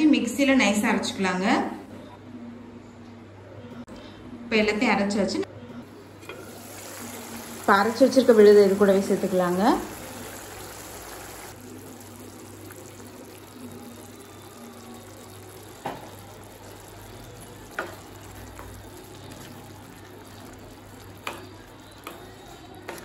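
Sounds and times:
gravy simmering with low sizzle: 5.8 - 23.0.

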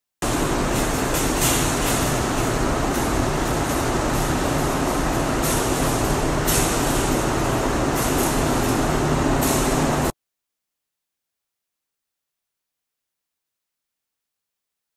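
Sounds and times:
low equipment hum: 0.2 - 10.1
paint spray gun hissing: 0.3 - 10.1.

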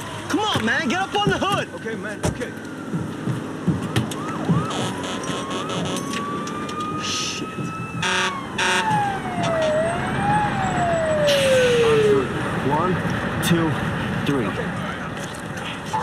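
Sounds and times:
vehicle noise: 0.0 - 16.0
siren-like wail: 2.8 - 12.5.

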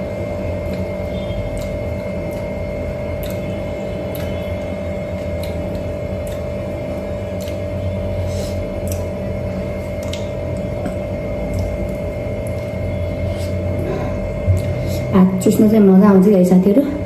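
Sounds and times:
machine hum: 0.0 - 17.0
chewing and smacking: 0.2 - 8.0, 8.7 - 13.7, 14.3 - 14.8.

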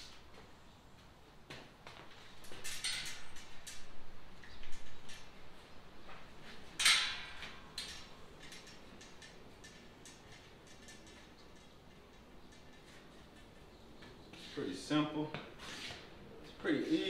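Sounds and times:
metal kennel parts rattling: 2.4 - 5.4, 6.6 - 13.6.

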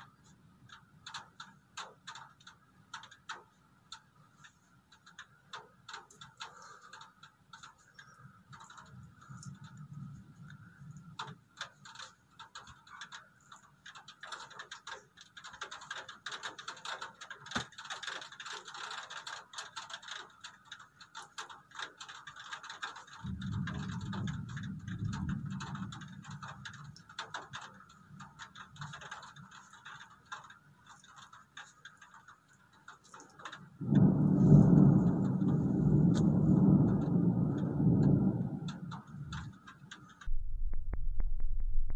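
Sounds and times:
raindrops ticking on hard surface: 0.0 - 41.9
thunder rumbling: 23.2 - 27.1, 33.8 - 41.9.

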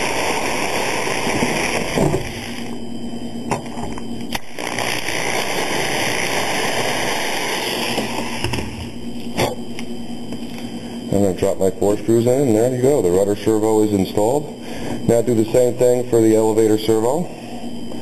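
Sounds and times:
small electric drill running: 0.0 - 2.8, 4.3 - 9.0.

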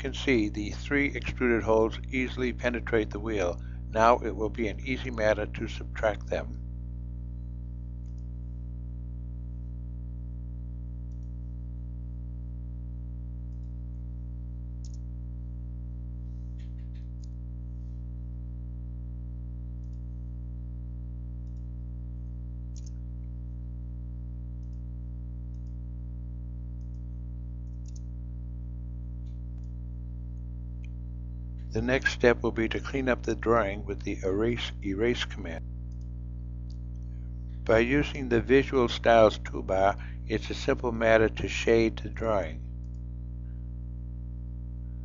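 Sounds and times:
steady low hum: 0.0 - 45.0
computer mouse clicks: 8.0 - 8.3, 11.1 - 11.3, 14.8 - 15.0, 22.7 - 23.0, 25.5 - 25.8, 27.6 - 28.1.

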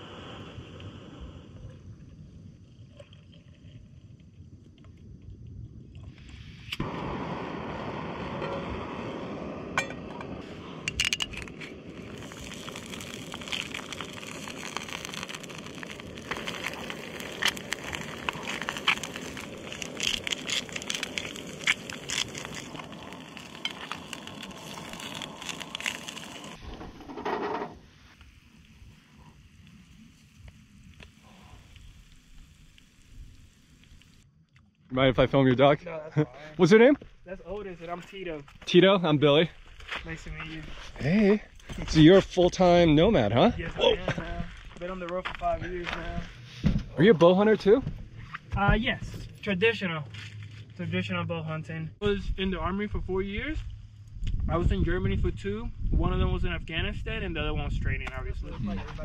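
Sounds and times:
eggs sizzling in a pan: 11.1 - 26.6, 27.7 - 34.2.

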